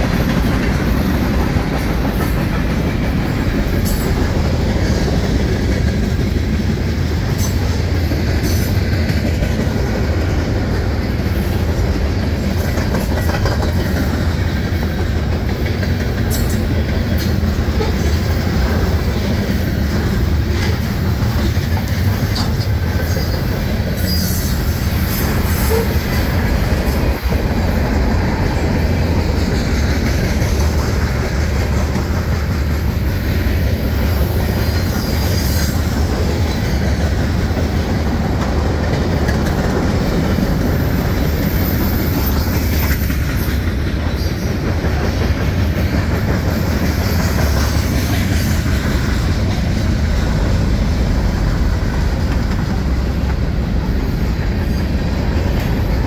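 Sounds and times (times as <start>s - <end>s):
freight train rumbling on rails: 0.0s - 56.0s
high wheel squeal: 24.0s - 26.2s.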